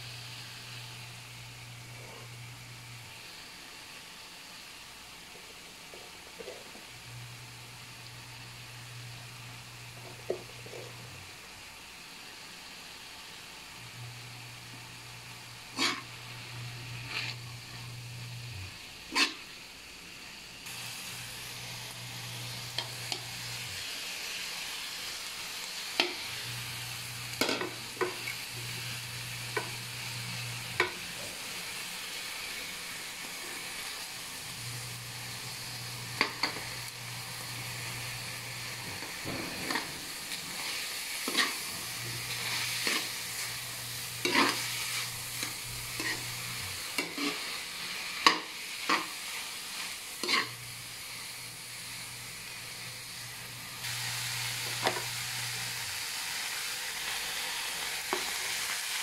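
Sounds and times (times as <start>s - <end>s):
food sizzling in a wok: 0.0s - 59.0s
metal spatula scraping a pan: 15.7s - 16.1s, 19.1s - 19.5s, 38.8s - 43.5s, 44.1s - 47.6s, 49.8s - 50.6s.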